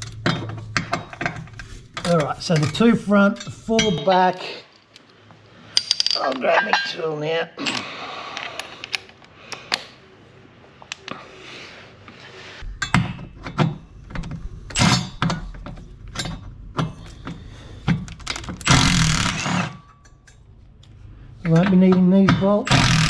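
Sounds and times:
cordless driver spinning: 18.6s - 19.7s, 22.7s - 23.0s.

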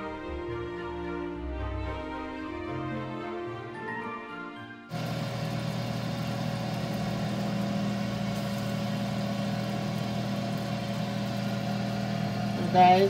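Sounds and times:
air fryer oven humming: 4.9s - 13.0s.

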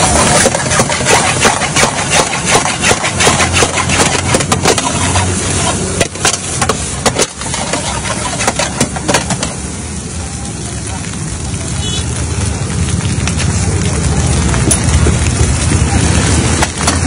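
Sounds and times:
ladle clanging and scraping wok: 0.0s - 9.6s
gas burner roar: 0.0s - 17.0s.

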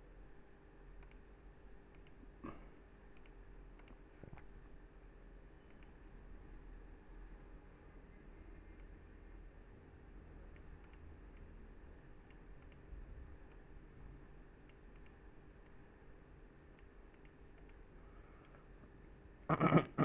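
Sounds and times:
low steady hum: 0.0s - 20.0s
faint computer mouse clicks: 1.0s - 1.2s, 1.9s - 2.2s, 3.1s - 4.5s, 5.6s - 6.0s, 10.5s - 11.5s, 12.3s - 12.8s, 14.7s - 15.8s, 16.8s - 17.8s.

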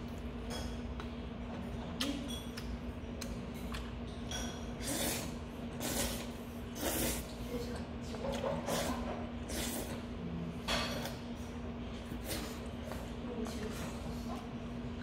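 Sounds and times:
steady hum: 0.0s - 15.0s
man slurping noodles: 4.8s - 7.3s.

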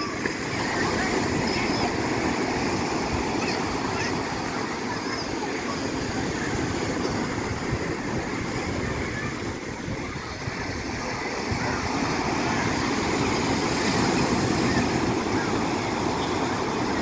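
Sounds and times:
sea surf washing in: 0.0s - 17.0s
wind buffeting microphone: 5.4s - 17.0s.

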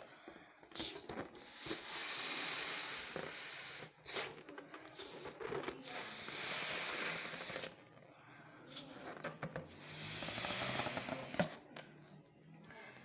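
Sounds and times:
breath blown into balloon: 0.7s - 4.4s, 5.0s - 7.8s, 9.7s - 11.5s.

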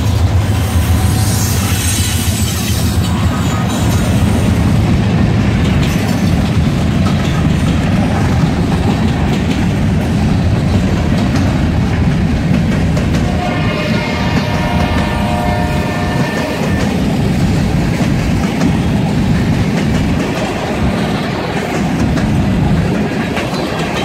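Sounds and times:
diesel locomotive passing: 0.0s - 24.0s
train cars rumbling: 0.0s - 24.0s
wheels clicking over rails: 5.4s - 13.3s.

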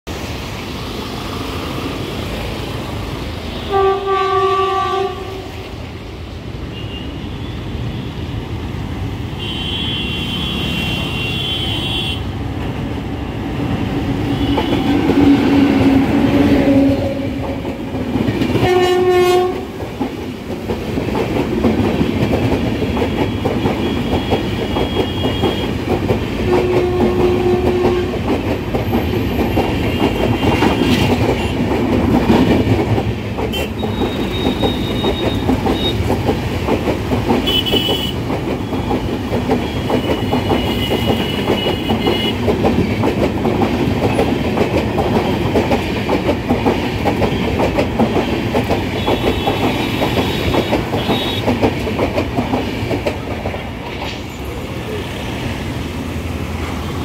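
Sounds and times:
road traffic: 0.0s - 57.0s
locomotive horn: 3.6s - 5.6s, 9.4s - 12.3s, 18.6s - 19.7s, 26.5s - 28.2s, 37.4s - 38.2s
train wheels clattering over joints: 13.8s - 54.7s.

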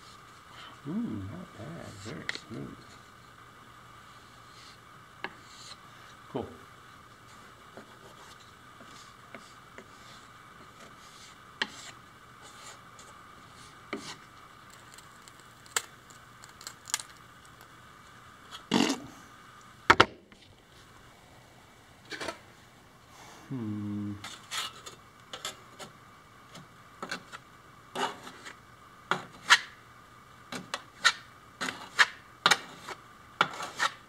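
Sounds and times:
putty knife scraping on wood: 31.0s - 34.0s.

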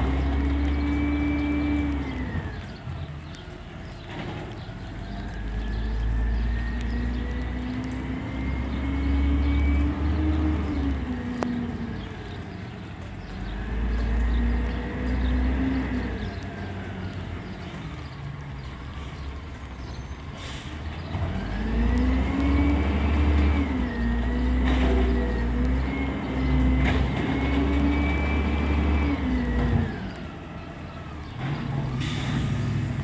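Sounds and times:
diesel truck engine revving: 0.0s - 19.6s, 20.4s - 33.0s.

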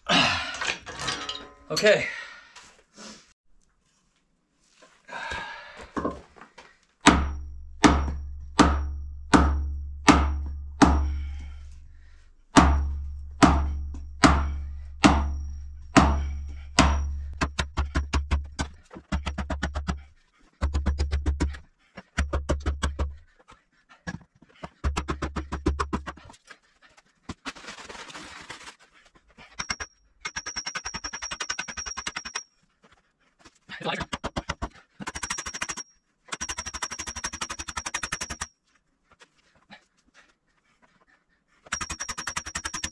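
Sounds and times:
heavy blows on ringing pipe: 7.1s - 17.4s.

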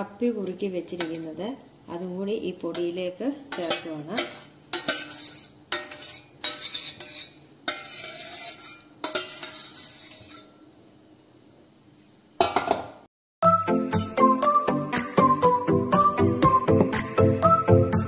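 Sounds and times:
metal spoon scraping steel bowls: 0.9s - 1.4s, 2.7s - 10.6s.

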